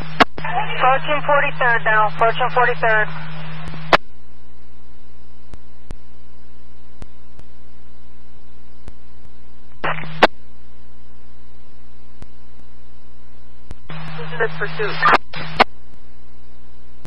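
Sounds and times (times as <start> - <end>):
radio static burst: 0.0 - 4.0, 9.8 - 10.4, 13.8 - 15.7
radio scanner hum: 0.0 - 17.0.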